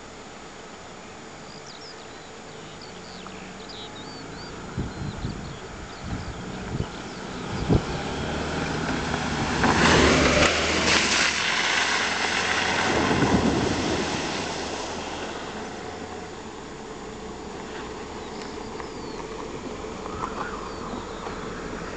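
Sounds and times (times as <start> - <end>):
water splashing off tyres: 6.6 - 21.9.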